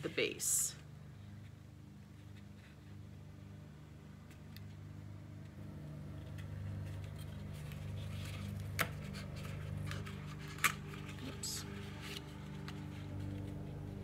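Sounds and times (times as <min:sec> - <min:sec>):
steady low hum: 0:00.0 - 0:14.0
paper rustling and sliding: 0:06.2 - 0:14.0.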